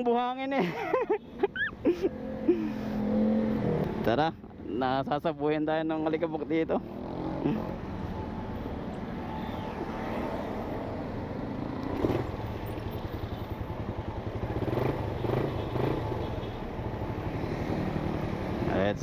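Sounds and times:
motorcycle engine running: 11.4s - 18.9s.

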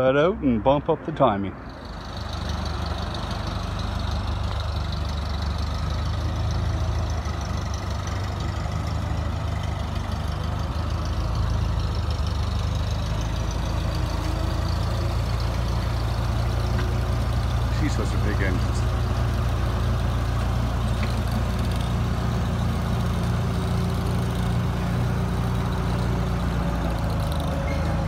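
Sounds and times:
forklift engine humming: 0.0s - 28.0s.

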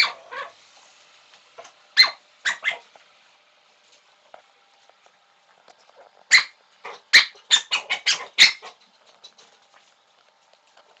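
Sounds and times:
dog barking: 2.0s - 2.9s, 6.3s - 8.8s.

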